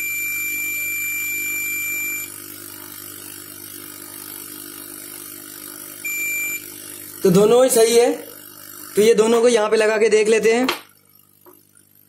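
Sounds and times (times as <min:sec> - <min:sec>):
high-pitched multimeter beep: 0:00.0 - 0:02.4, 0:06.0 - 0:06.8.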